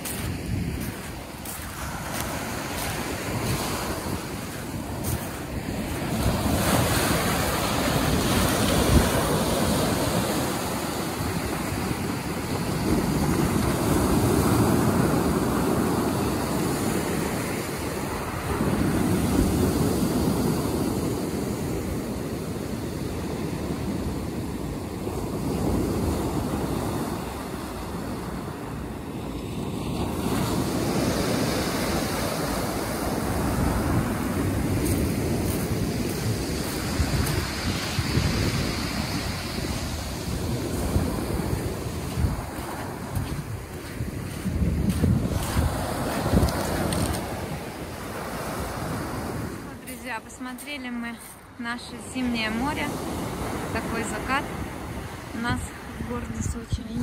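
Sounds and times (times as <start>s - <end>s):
surf breaking on pebble beach: 0.0s - 22.4s.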